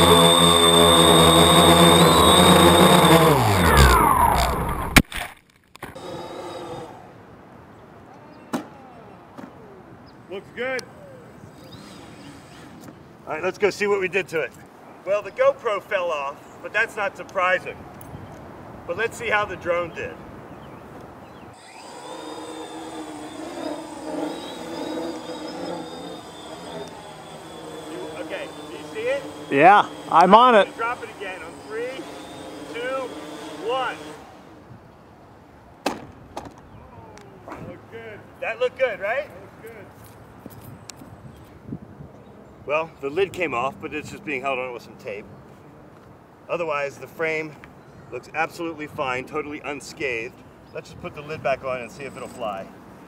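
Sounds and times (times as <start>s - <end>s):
quadcopter motors whining: 0.0s - 5.0s, 5.8s - 7.2s, 10.8s - 13.1s, 21.5s - 34.8s, 51.1s - 52.8s
drone propellers buzzing: 0.0s - 5.1s, 5.8s - 7.2s, 21.5s - 34.7s.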